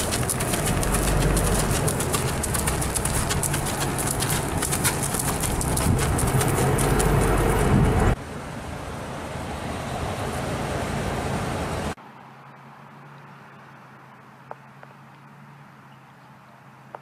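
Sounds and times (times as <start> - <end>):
vehicle engine running: 0.0 - 8.2
steady outdoor hiss: 0.0 - 17.0.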